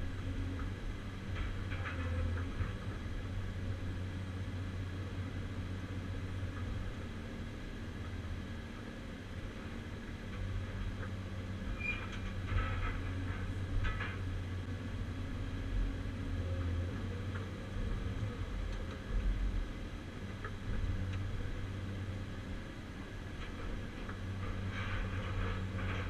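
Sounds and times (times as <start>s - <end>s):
excavator engine and hydraulics: 0.0s - 26.0s.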